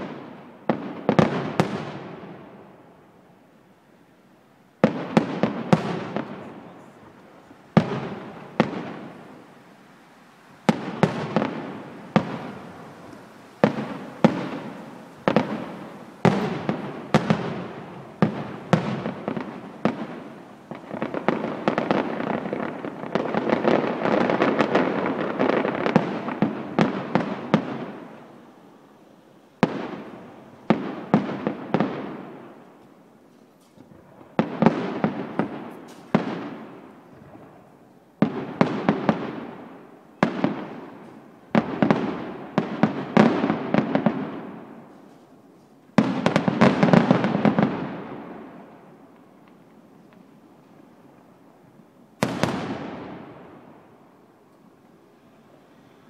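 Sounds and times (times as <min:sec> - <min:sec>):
firework crackle: 0:00.0 - 0:56.0
firework shells bursting: 0:04.8 - 0:27.9, 0:52.2 - 0:53.3.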